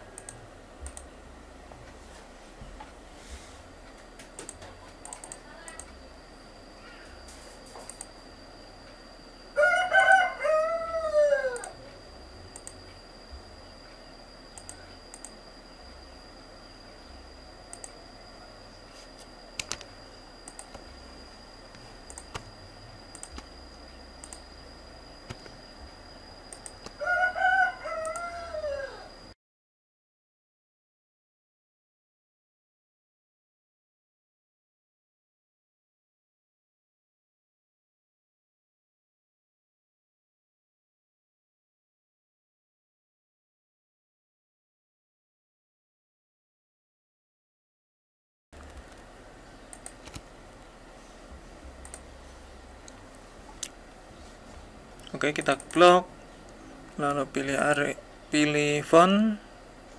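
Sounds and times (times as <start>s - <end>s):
mouse clicks: 0.2s - 1.1s, 4.2s - 6.0s, 7.8s - 8.1s, 12.6s - 12.8s, 14.6s - 15.4s, 19.6s - 20.9s, 21.7s - 22.5s, 23.1s - 23.5s, 24.2s - 24.5s, 26.5s - 27.0s, 49.7s - 50.3s, 51.8s - 52.1s
rooster crowing: 9.5s - 12.0s, 26.8s - 29.4s.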